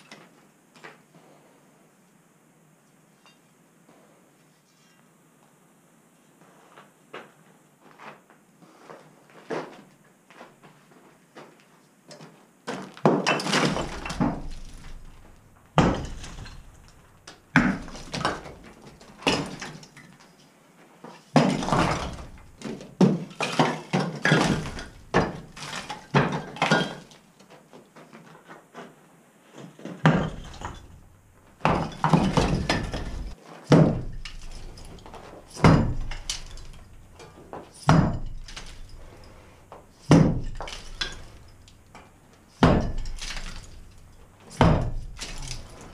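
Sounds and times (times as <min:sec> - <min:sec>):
sledgehammer smashing brick: 0:12.7 - 0:20.0, 0:21.3 - 0:27.2, 0:30.0 - 0:45.9
brick and plaster clattering down: 0:12.7 - 0:20.4, 0:21.1 - 0:27.7, 0:29.6 - 0:45.9.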